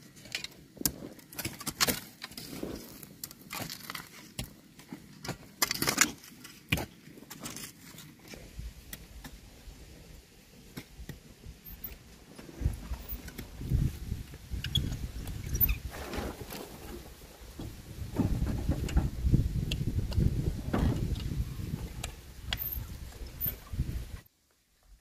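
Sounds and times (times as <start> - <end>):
soil sliding out: 11.8 - 24.2
wheelbarrow rolling and knocking: 12.4 - 24.2.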